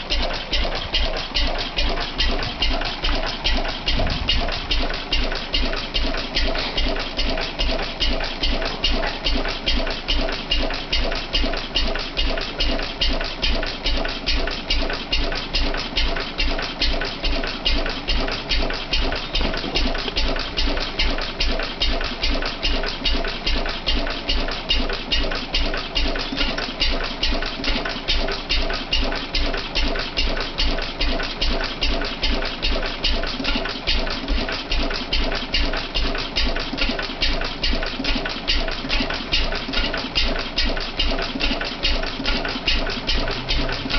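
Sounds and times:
fast clicking: 0.0s - 43.9s
stationary engine running: 0.0s - 43.9s.

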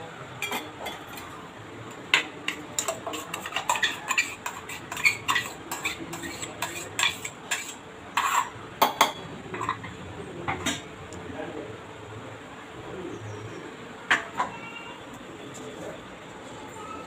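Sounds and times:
spoon scraping metal jar: 2.5s - 8.5s.

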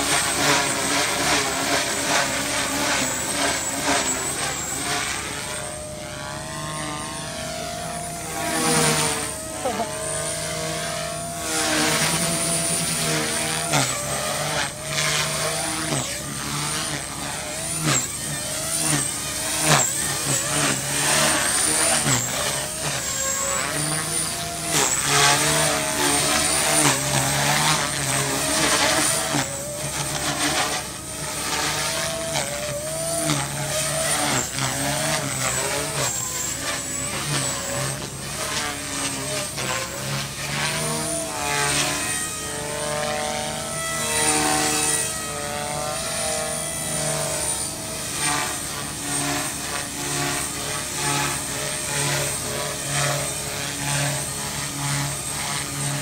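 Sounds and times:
electric motor whine: 0.0s - 56.0s
rotor blades whirring: 0.0s - 56.0s.

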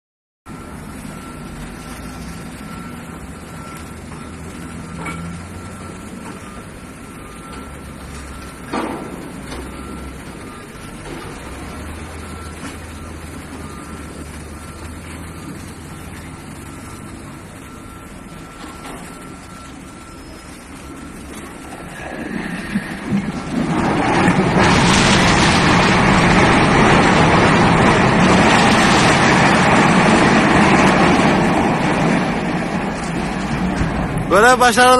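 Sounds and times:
low engine rumble: 0.5s - 34.9s
reversing alarm beeping: 0.5s - 34.9s
loud bang: 23.1s - 31.4s.

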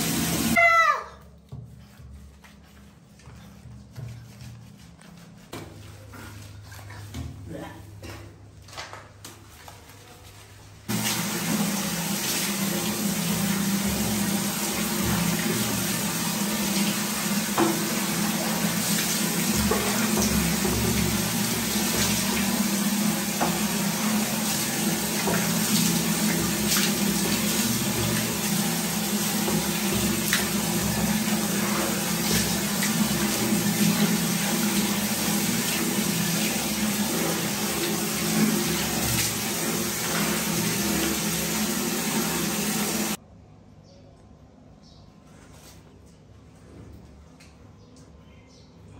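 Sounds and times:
shower water spraying: 0.0s - 0.6s, 10.9s - 43.2s.

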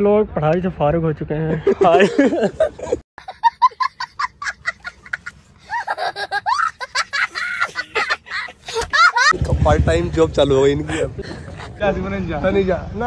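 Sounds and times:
boy laughing hysterically: 1.6s - 9.4s, 10.9s - 11.8s.

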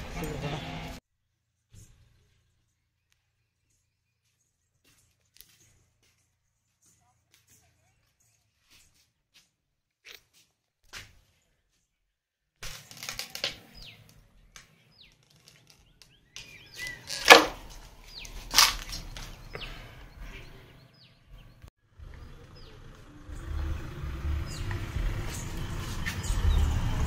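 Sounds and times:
birds chirping: 12.9s - 27.0s
low rumble: 21.5s - 27.0s.

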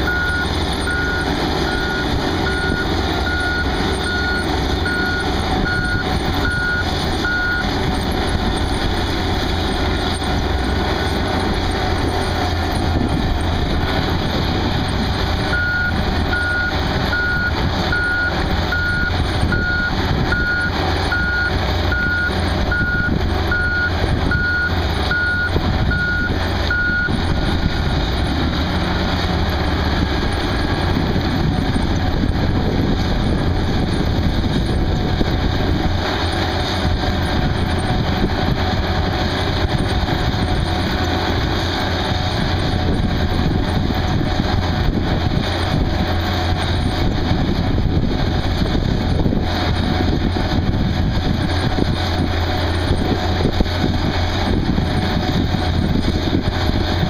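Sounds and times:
diesel engine rumbling under load: 0.0s - 57.0s.

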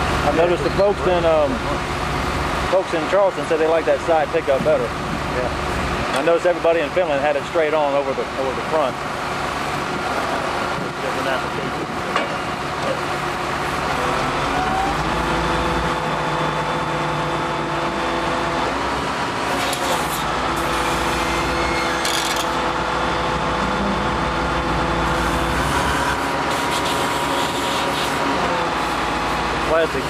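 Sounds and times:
diesel engine running under load: 0.0s - 30.0s.

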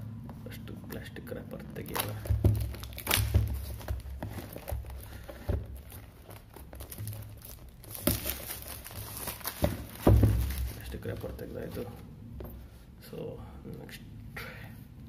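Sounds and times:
plastic wrap crinkling: 1.8s - 12.0s
box bumps and knocks: 2.0s - 12.6s.

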